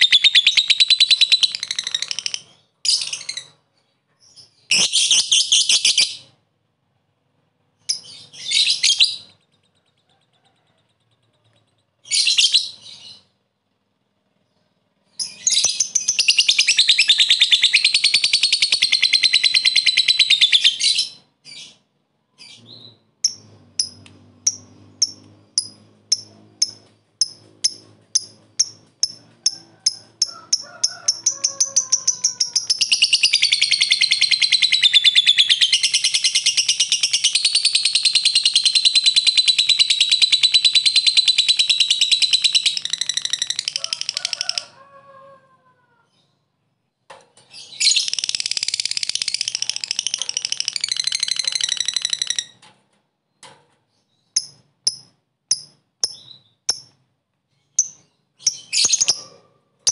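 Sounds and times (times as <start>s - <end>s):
lovebird chattering trill: 0.0s - 3.6s, 15.2s - 21.2s, 23.2s - 44.7s, 47.8s - 52.6s
lovebird sharp ticks: 23.2s - 29.6s, 54.4s - 57.0s.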